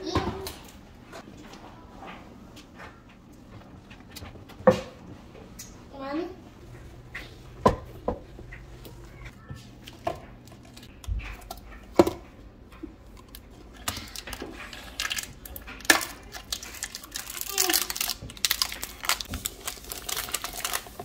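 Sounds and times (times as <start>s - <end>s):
objects knocking on hard surfaces: 7.6s - 8.7s
plastic wrapping crinkling: 13.3s - 21.0s.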